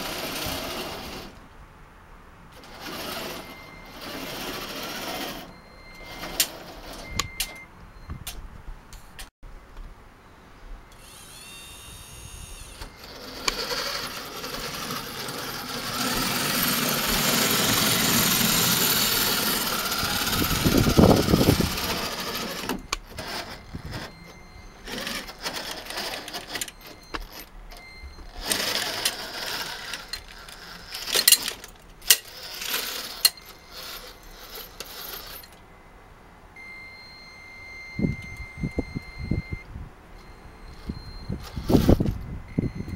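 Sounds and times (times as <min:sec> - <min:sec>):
small electric motors whirring: 0:00.0 - 0:01.4, 0:02.6 - 0:07.0, 0:10.9 - 0:24.2, 0:24.8 - 0:27.5, 0:28.3 - 0:35.5.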